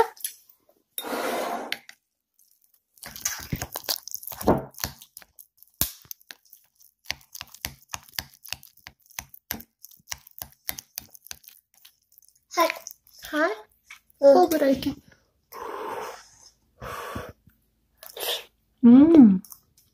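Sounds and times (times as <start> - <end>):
spoon scraping ceramic bowl: 1.0 - 1.8.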